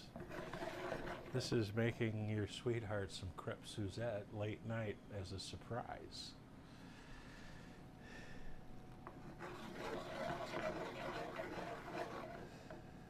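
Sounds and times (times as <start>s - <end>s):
spatula scraping a skillet: 0.2s - 1.6s, 9.1s - 12.8s.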